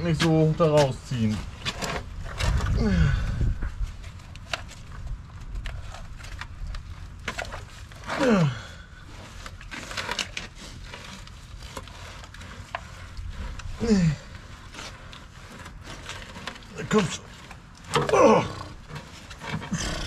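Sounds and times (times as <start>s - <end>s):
heavy battery clunking and scraping: 0.0s - 20.0s
short falling groan: 18.0s - 18.9s.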